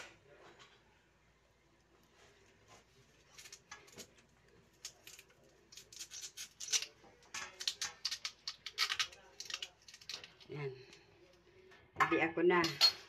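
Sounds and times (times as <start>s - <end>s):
knife scraping taro: 4.8s - 10.4s.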